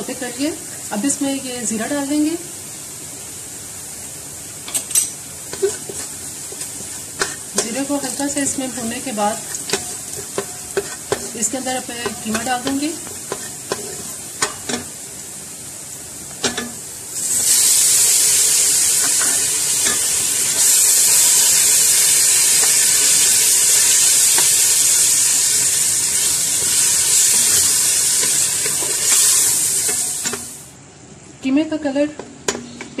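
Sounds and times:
mince sizzling in hot oil: 0.0s - 30.8s
wooden spatula stirring and tapping: 5.5s - 14.8s.

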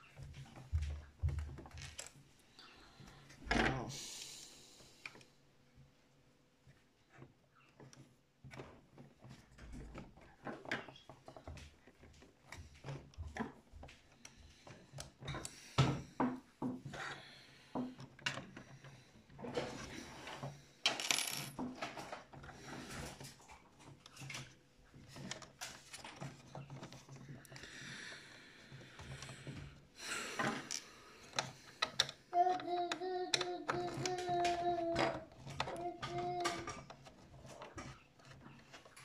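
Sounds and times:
clicks and scrapes of plastic parts: 30.4s - 39.0s.

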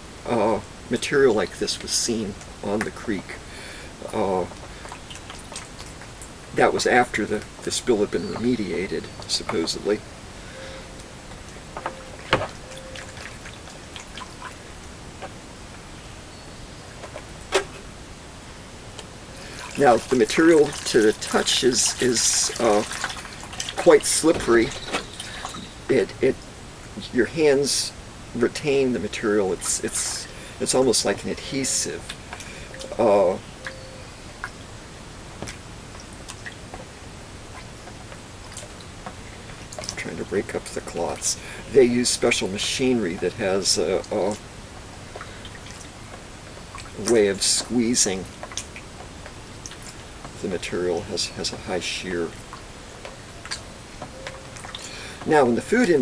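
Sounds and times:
hands squelching wet slurry: 19.4s - 25.8s.

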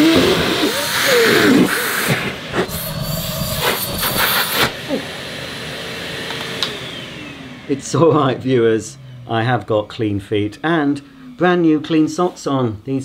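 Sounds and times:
air hissing and whistling: 0.0s - 5.0s
high motor whine: 0.0s - 11.9s.

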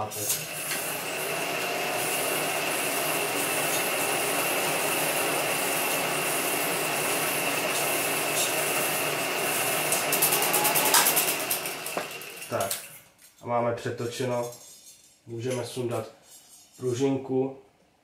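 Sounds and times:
film projector motor whirring: 0.2s - 12.9s.

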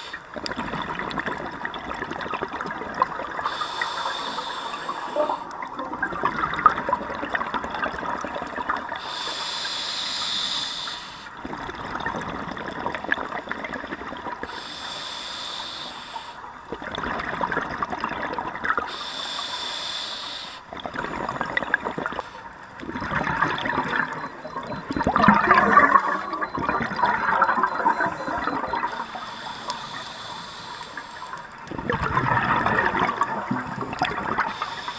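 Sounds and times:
hissing regulator inhalations: 3.4s - 5.5s, 9.0s - 11.4s, 14.5s - 16.5s, 18.9s - 22.5s, 25.7s - 31.6s, 34.4s - 34.9s
bubbling exhalations: 22.8s - 30.0s, 31.4s - 34.7s.

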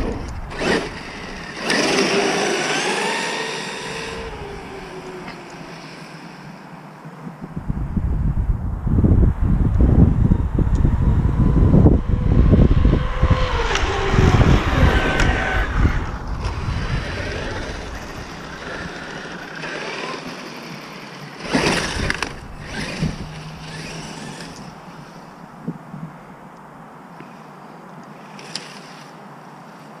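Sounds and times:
rc truck tyres rumbling: 0.0s - 6.6s, 9.0s - 26.1s
electric motor whine: 0.0s - 6.7s, 10.2s - 25.4s.

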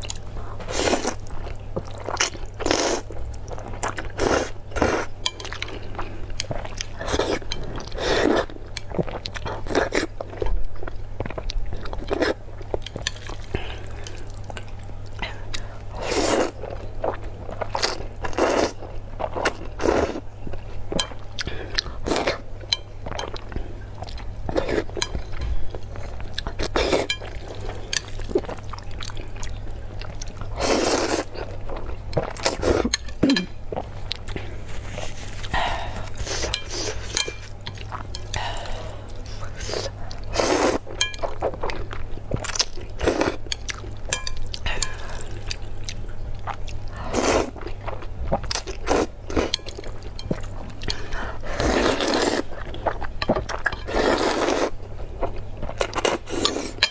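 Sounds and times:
steady low hum: 0.0s - 56.9s
chopsticks clinking on glass plate: 36.4s - 38.3s, 44.1s - 45.0s.

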